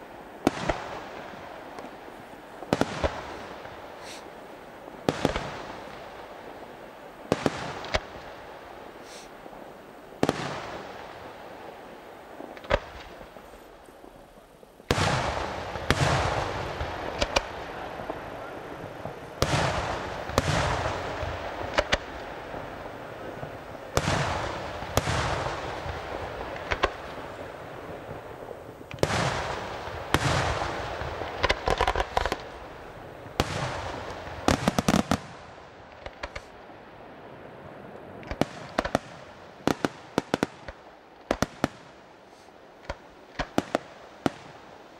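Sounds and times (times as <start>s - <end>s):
crackling firework cracks: 0.0s - 44.9s
firework shells bursting: 1.7s - 4.4s, 12.5s - 36.6s.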